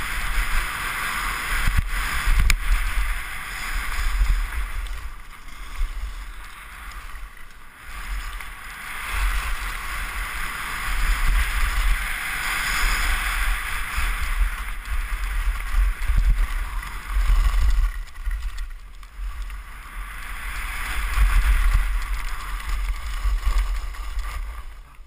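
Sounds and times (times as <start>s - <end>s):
skis hissing over snow: 0.0s - 25.0s
wind buffeting microphone: 8.0s - 25.0s.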